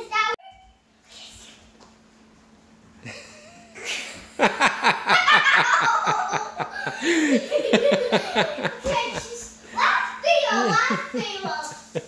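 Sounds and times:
girl giggling: 3.0 - 9.5, 10.4 - 12.0.

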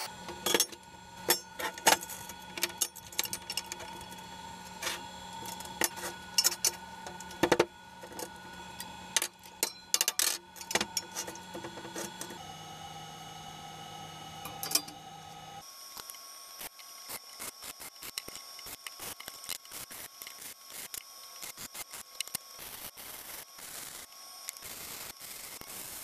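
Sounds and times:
metal bars clinking on steel table: 9.2 - 11.2, 14.4 - 15.0.

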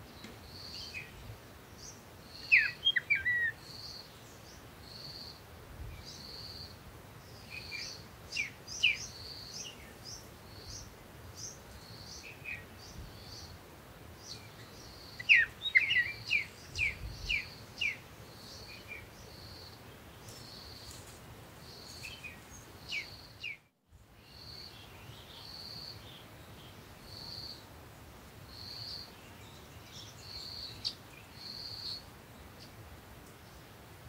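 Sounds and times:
birds chirping: 0.1 - 5.3, 7.3 - 13.6, 14.2 - 21.0, 21.6 - 23.6.

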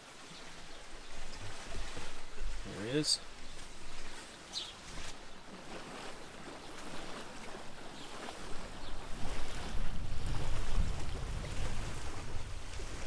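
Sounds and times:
steady outdoor hiss: 0.0 - 13.0
wind buffeting microphone: 5.7 - 13.0.

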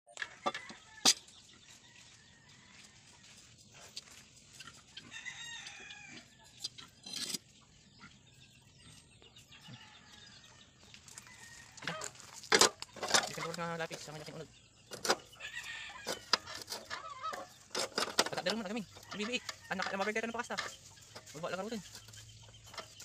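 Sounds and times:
chickens clucking: 0.1 - 23.0
rooster crowing: 5.0 - 6.3.

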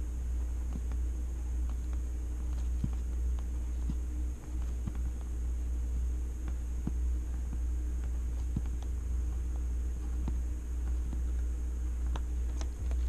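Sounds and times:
steady low hum: 0.0 - 13.0
pencil tapping on paper: 1.6 - 5.4, 6.4 - 13.0.

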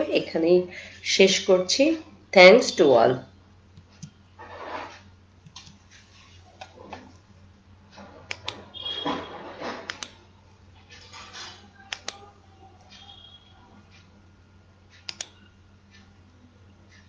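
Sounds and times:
soft rustling: 4.4 - 7.3
computer mouse clicks: 5.4 - 6.0, 7.9 - 8.6, 9.9 - 10.2, 11.8 - 13.3, 14.9 - 16.1.

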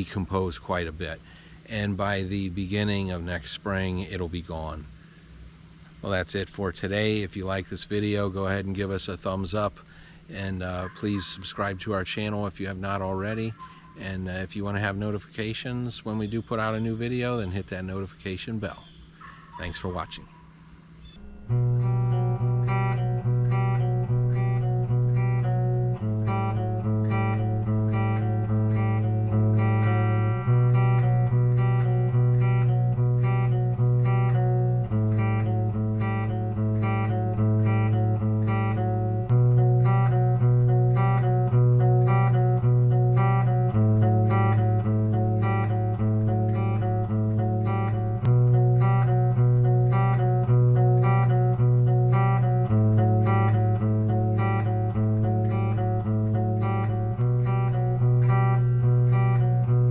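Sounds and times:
plucked guitar music: 21.2 - 59.9.

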